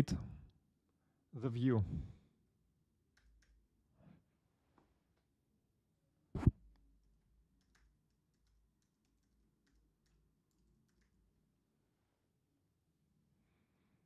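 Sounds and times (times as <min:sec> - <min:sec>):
keyboard typing clicks: 0:07.6 - 0:11.2.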